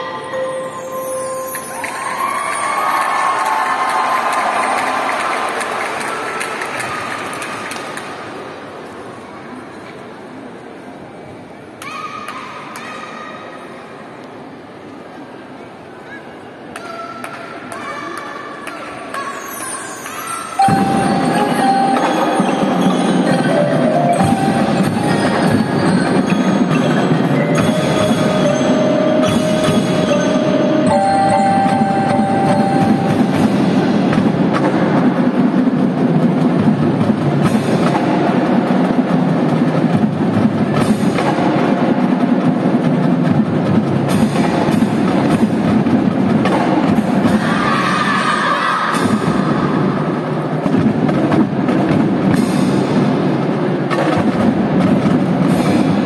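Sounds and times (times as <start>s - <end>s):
marimbas playing: 0.0s - 5.1s, 18.9s - 35.5s
marching band music: 0.0s - 6.4s, 18.9s - 48.0s, 48.9s - 56.0s.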